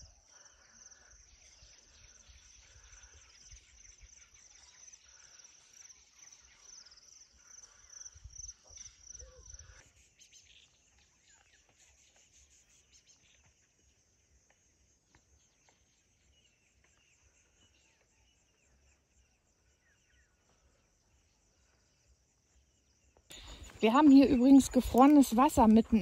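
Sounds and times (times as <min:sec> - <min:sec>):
pulsing insect chirr: 0:00.0 - 0:13.4, 0:17.4 - 0:26.0.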